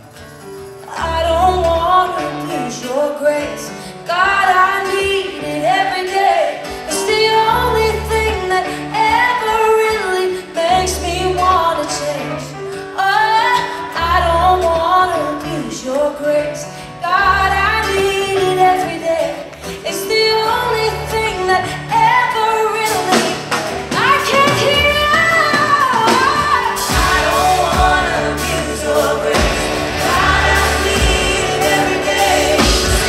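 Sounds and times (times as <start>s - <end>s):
drums: 0.0s - 33.0s
electric guitars: 0.0s - 33.0s
woman singing into microphone: 0.9s - 33.0s
deep bass notes: 26.9s - 33.0s.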